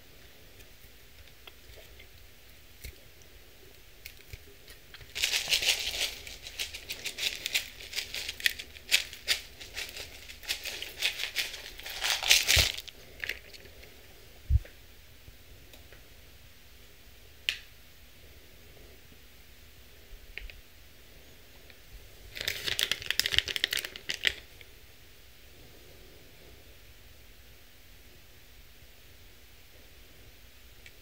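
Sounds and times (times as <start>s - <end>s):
crisp bits pattering on salad: 4.0s - 13.7s, 22.3s - 24.5s
rattling in plastic cup: 5.0s - 13.7s, 22.3s - 24.4s.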